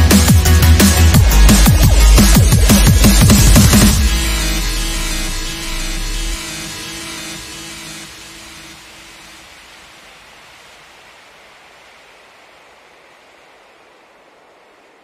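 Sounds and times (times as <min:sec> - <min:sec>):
music: 0:00.0 - 0:09.6
steady rushing hiss: 0:00.0 - 0:15.0.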